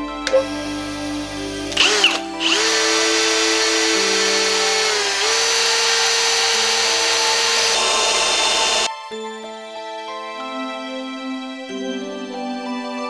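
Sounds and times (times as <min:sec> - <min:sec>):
electric drill boring into steel: 0:00.2 - 0:08.9
bench grinder motor running: 0:00.3 - 0:08.9.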